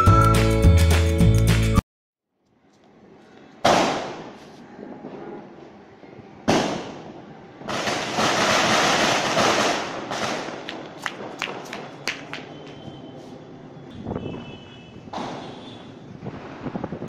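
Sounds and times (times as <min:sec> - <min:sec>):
firecracker bursts: 0:06.5 - 0:13.0.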